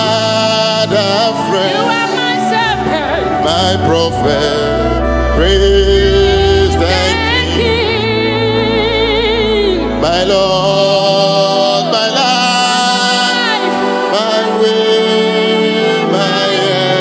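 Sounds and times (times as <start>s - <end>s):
man and woman singing gospel: 0.0s - 17.0s
sustained instrumental backing: 0.0s - 17.0s.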